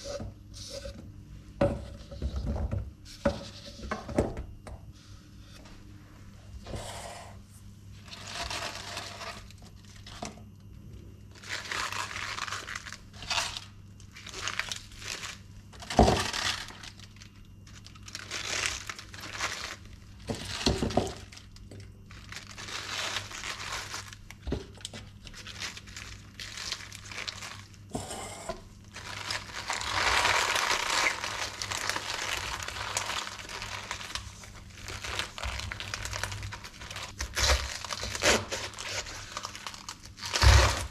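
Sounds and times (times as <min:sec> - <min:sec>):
spinach leaves rustling: 0:22.1 - 0:24.4, 0:28.9 - 0:40.9.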